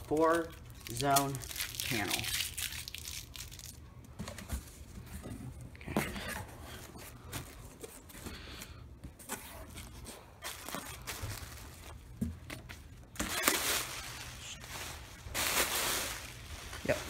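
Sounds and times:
packing tape tearing: 0.1s - 3.8s, 10.4s - 11.9s, 13.2s - 14.2s
cardboard rustling and scraping: 4.2s - 17.0s.

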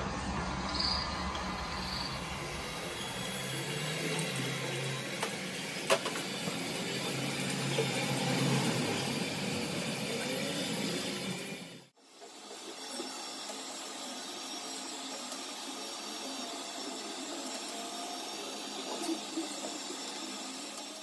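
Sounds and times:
heat gun fan humming: 1.2s - 11.5s.

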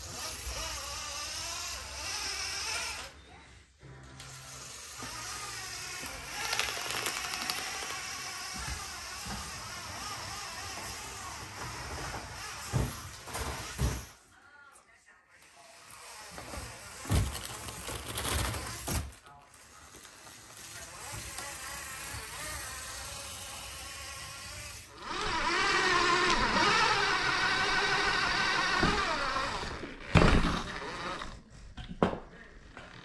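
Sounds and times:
electric motor and gears whining: 4.3s - 14.1s, 19.9s - 31.4s.

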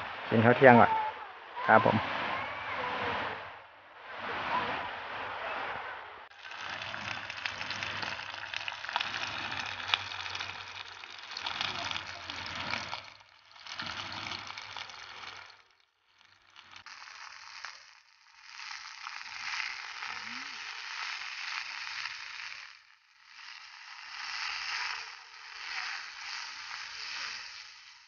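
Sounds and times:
meat sizzling in oil: 6.3s - 28.0s.

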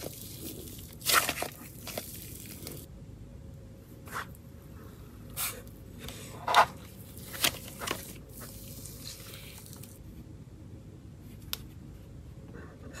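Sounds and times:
slime squishing: 0.0s - 2.9s.

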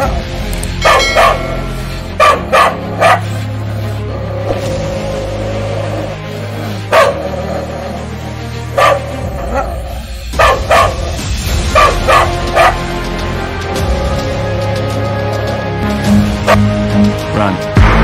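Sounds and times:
background music: 0.0s - 18.0s
dog barking: 0.8s - 3.4s, 6.9s - 7.7s, 8.7s - 12.9s.

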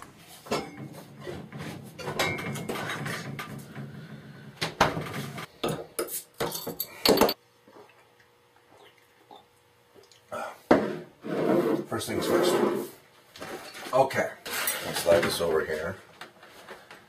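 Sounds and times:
glass bottles clinking: 2.0s - 3.2s, 6.4s - 7.4s.

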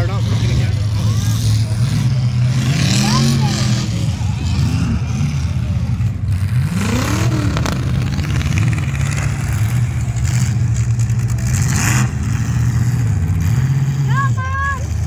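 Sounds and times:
car engines revving: 0.0s - 15.0s.

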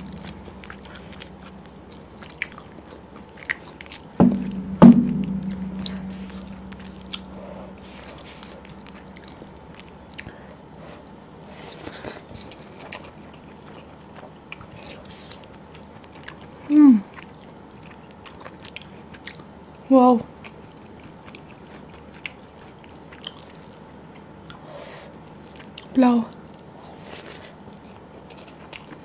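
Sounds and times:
short falling hum: 0.0s - 2.6s, 4.2s - 10.0s
close chewing and mouth clicks: 0.1s - 4.2s, 6.7s - 29.0s
glass bowl knocking on table: 4.2s - 7.6s
glass bowl ringing: 4.2s - 9.5s.

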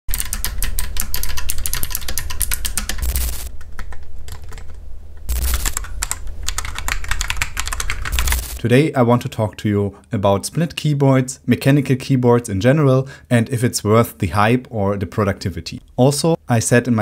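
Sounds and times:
fast typing on mechanical keyboard: 0.1s - 8.6s.

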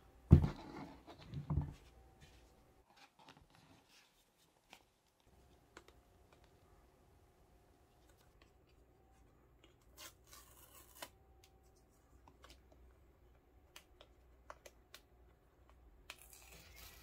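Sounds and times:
cardboard box knocking on desk: 0.3s - 0.7s.

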